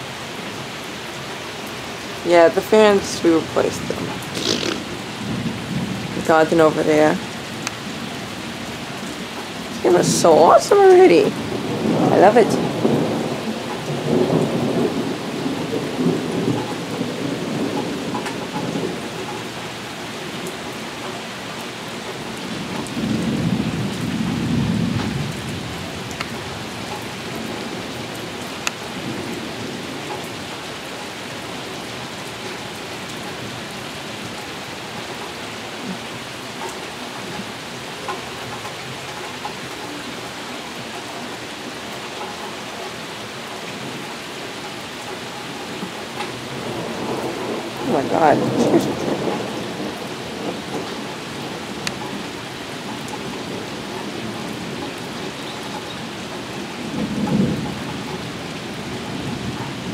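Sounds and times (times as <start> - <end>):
heavy rain falling: 0.0 - 59.9
thunder rumbling: 2.3 - 7.3, 9.2 - 19.7, 22.3 - 30.5, 45.8 - 59.9.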